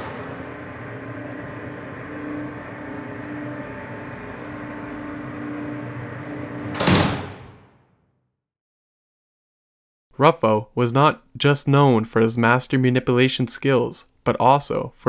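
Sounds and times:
cinematic impact hit: 0.0s - 5.6s
droning pad with low tones: 0.0s - 6.9s.

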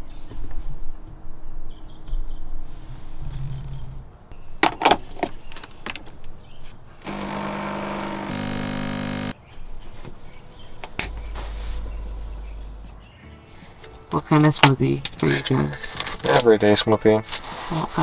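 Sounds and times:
espresso machine pump buzzing: 7.0s - 9.3s
low hum: 7.0s - 9.3s, 10.5s - 14.1s.

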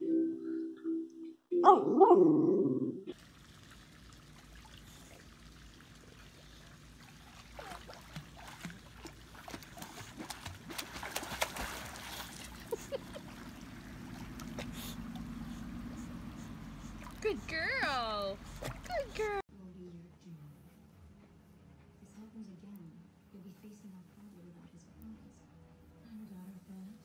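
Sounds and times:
pool water splashing: 3.1s - 19.4s.

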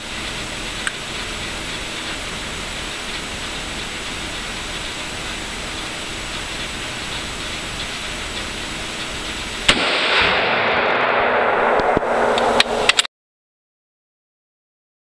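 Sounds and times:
steady hiss: 0.0s - 13.0s
rifle shot: 9.7s - 13.1s
sharp clicks: 11.8s - 13.1s.

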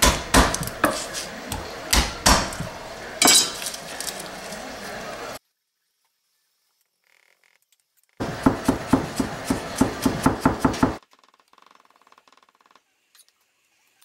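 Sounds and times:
knife chopping on wooden board: 0.0s - 1.2s, 1.9s - 2.7s, 8.2s - 11.0s.

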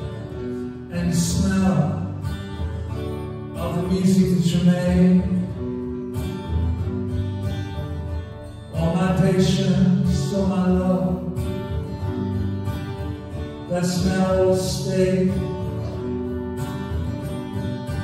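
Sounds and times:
man singing: 0.0s - 2.4s, 3.5s - 6.0s, 8.7s - 11.9s, 13.4s - 16.2s
acoustic guitar: 0.0s - 18.0s.

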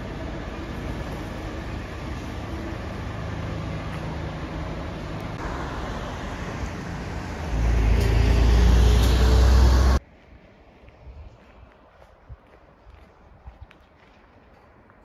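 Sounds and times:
cars passing: 0.0s - 11.8s
low traffic rumble: 0.0s - 15.0s.

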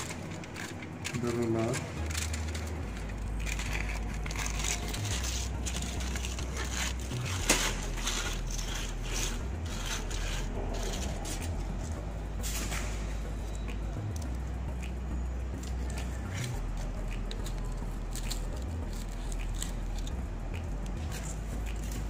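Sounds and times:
aluminium foil crinkling: 0.0s - 11.6s.

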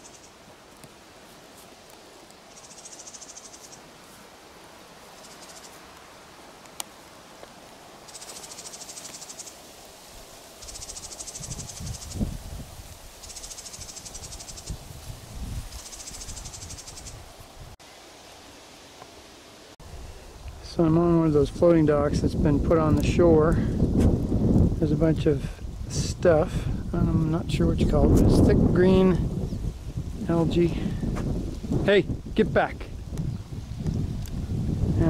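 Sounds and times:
insect trilling: 0.0s - 0.4s, 2.5s - 3.9s, 5.1s - 5.9s, 8.0s - 9.7s, 10.5s - 15.0s, 15.6s - 17.4s.

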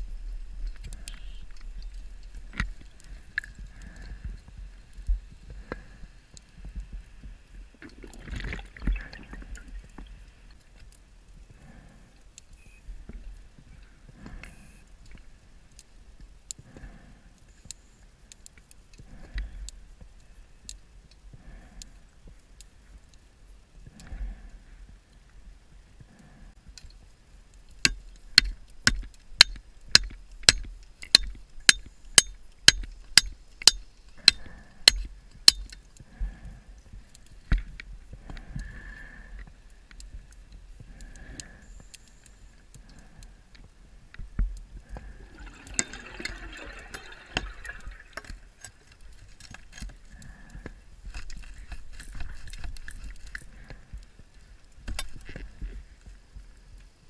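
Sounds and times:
faint ticks: 0.6s - 8.0s, 10.0s - 45.6s
scuba exhaust bubbles: 44.8s - 48.9s.

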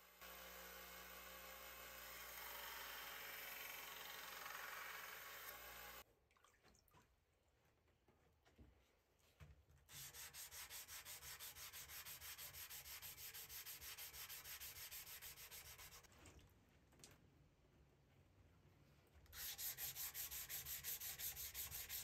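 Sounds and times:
sandpaper rubbing on steel blade: 9.9s - 16.1s, 19.4s - 22.0s.

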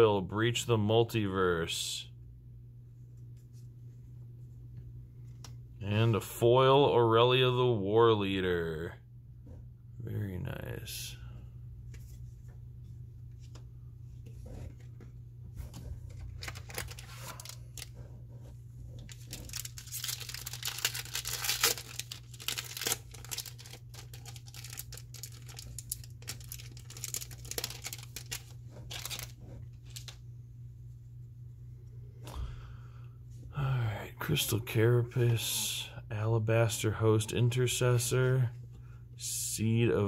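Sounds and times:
cards rustling and clicking: 15.8s - 18.0s, 19.0s - 30.2s
foil wrapper tearing and crinkling: 16.2s - 17.9s, 19.0s - 30.2s.

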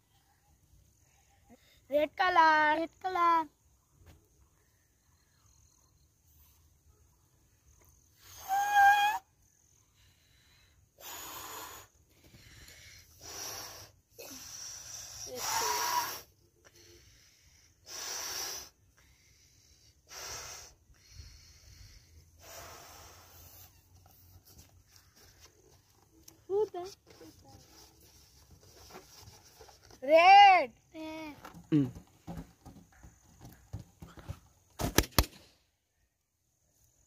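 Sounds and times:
breaths blowing up balloon: 11.0s - 16.4s.

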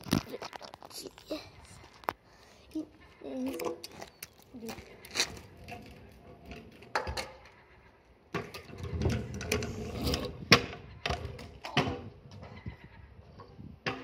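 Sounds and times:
scooter rolling on pavement: 0.0s - 12.4s
scooter clacking on ground: 3.4s - 7.7s.

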